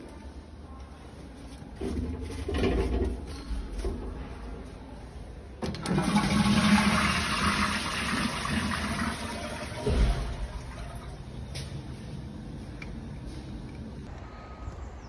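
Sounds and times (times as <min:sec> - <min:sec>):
water rushing into toilet bowl: 0:05.8 - 0:11.1.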